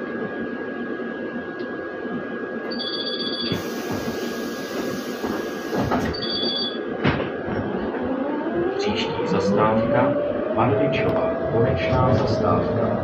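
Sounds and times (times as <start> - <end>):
electrical whine: 0.0 - 13.0
air hiss: 3.6 - 5.9.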